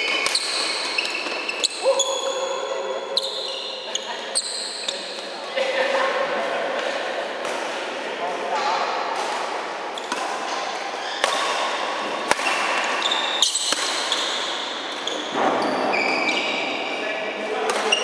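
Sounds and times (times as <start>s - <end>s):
racket hitting shuttlecock: 0.0s - 1.8s, 8.6s - 15.3s, 17.7s - 18.0s
shoes squeaking on court floor: 0.0s - 5.5s, 9.9s - 17.0s, 17.6s - 18.0s.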